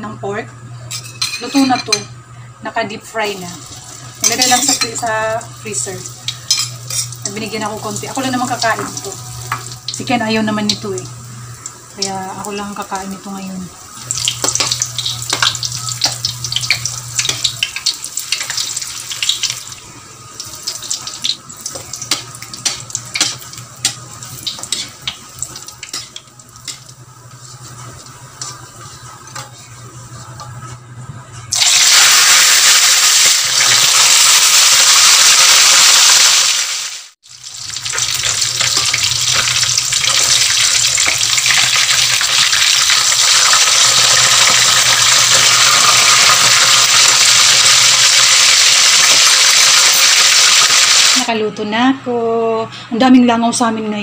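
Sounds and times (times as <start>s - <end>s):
loud dense sizzle of fish frying: 3.6s - 30.2s, 31.5s - 51.3s
oil crackling and popping: 14.1s - 27.0s, 37.2s - 51.2s.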